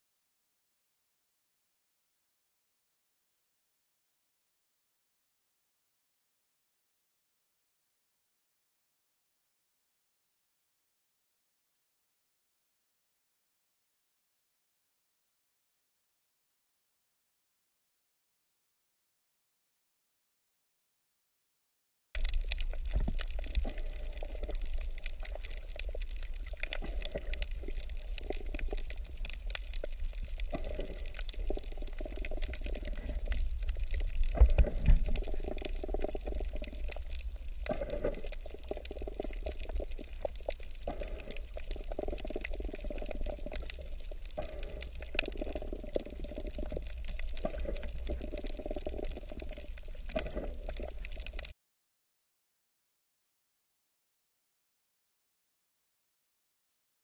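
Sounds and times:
underwater sloshing and bubbling: 22.2 - 51.5.

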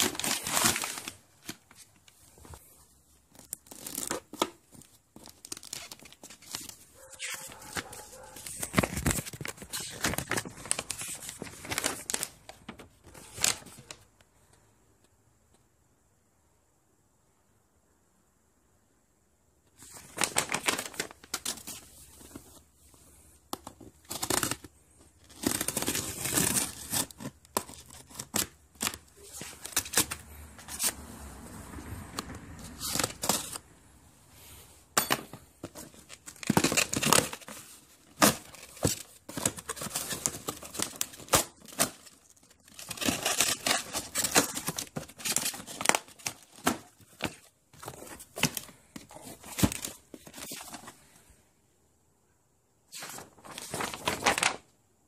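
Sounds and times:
paper crinkling: 0.0 - 14.1, 19.8 - 31.0, 35.6 - 51.1, 52.9 - 54.7.

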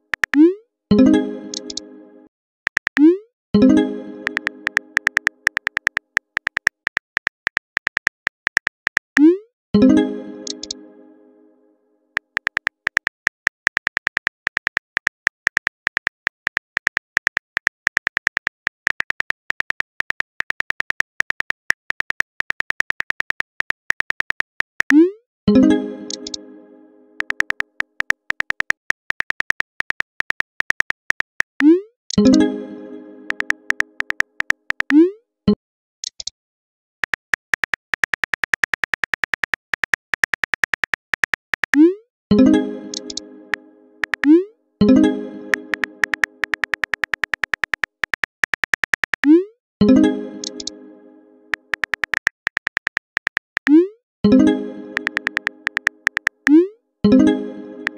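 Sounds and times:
phone keyboard clicks: 0.1 - 0.4, 1.5 - 1.8, 2.7 - 3.1, 4.2 - 9.2, 10.5 - 10.8, 12.2 - 25.0, 26.1 - 26.4, 27.2 - 32.3, 33.3 - 35.0, 37.0 - 41.8, 42.9 - 43.2, 44.0 - 44.3, 45.5 - 49.3, 50.4 - 50.7, 51.5 - 53.7, 55.0 - 56.6.

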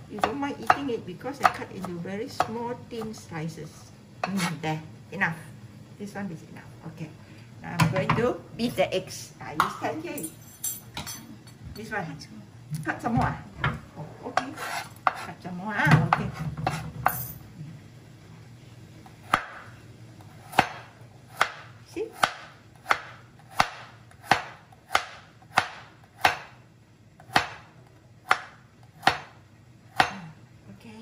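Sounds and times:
knife slicing on cutting board: 14.4 - 15.3.

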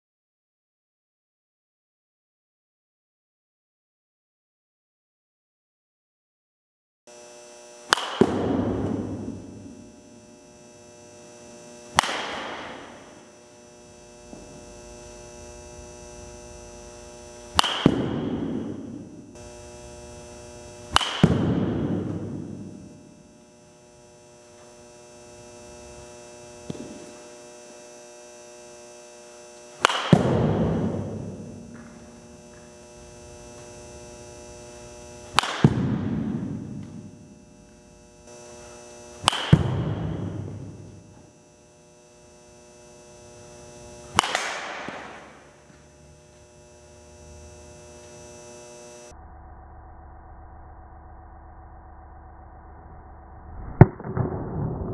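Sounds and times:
steady electrical hum: 7.1 - 49.2
baseball bat cracking balls: 7.8 - 10.4, 11.8 - 13.3, 17.4 - 19.5, 20.8 - 23.2, 25.8 - 27.3, 29.8 - 37.8, 38.5 - 41.4, 43.4 - 46.4.

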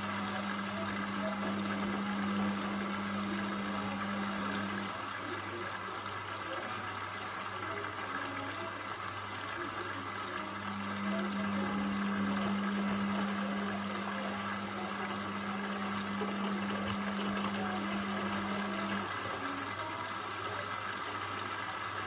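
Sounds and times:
washing machine drum motor humming: 0.0 - 22.0.

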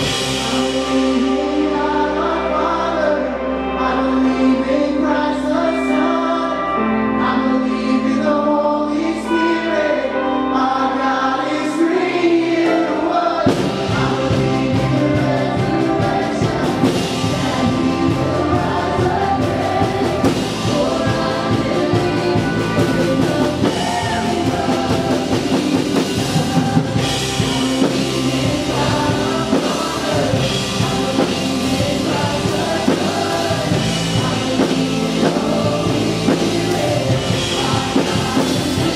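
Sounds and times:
drums and full band: 0.0 - 3.8, 12.4 - 38.9
held keyboard chords: 0.0 - 38.9
voices singing together: 0.0 - 38.9.

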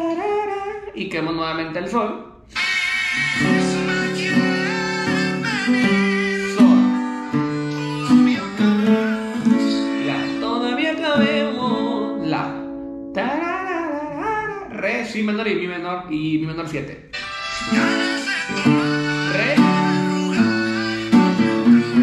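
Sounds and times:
person singing: 0.0 - 1.0, 2.5 - 14.8, 17.2 - 22.0
acoustic guitar strumming: 2.6 - 13.6, 17.1 - 22.0.

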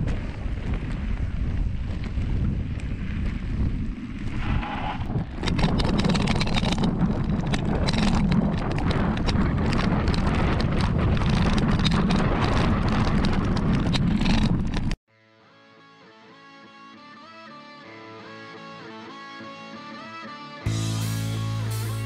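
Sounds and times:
bike rattling and clattering: 0.0 - 15.0
wind buffeting microphone: 0.0 - 15.0.

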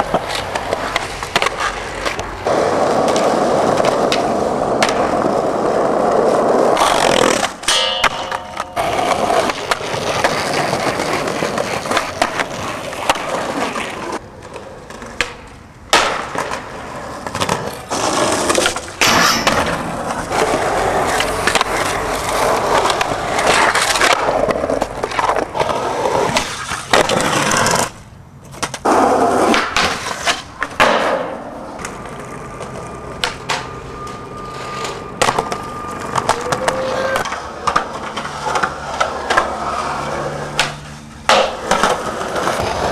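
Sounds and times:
skateboard trucks grinding: 0.0 - 42.9
skateboard wheels rolling on concrete: 0.0 - 42.9
skateboard tail pops and landings: 3.0 - 5.2, 15.2 - 16.6, 28.6 - 31.9, 40.6 - 42.9.

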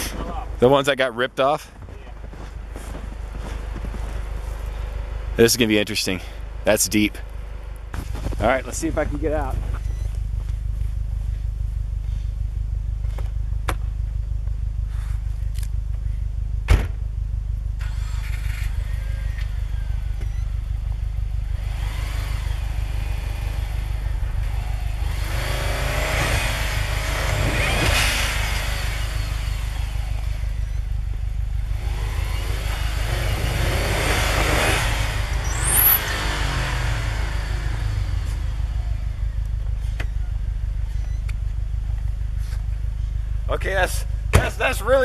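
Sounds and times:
wheels spinning in snow: 1.5 - 5.8, 17.8 - 41.3
car engine revving: 17.7 - 45.0.

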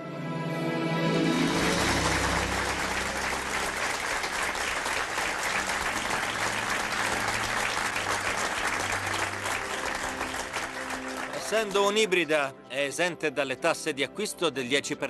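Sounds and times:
people applauding: 1.4 - 12.3.

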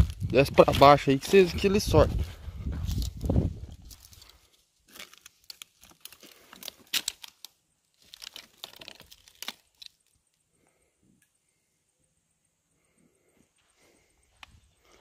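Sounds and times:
crinkling and crackling: 0.0 - 10.4.

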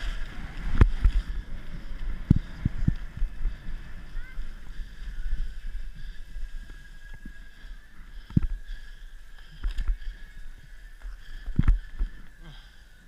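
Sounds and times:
skis shuffling through slushy snow: 0.0 - 7.7.

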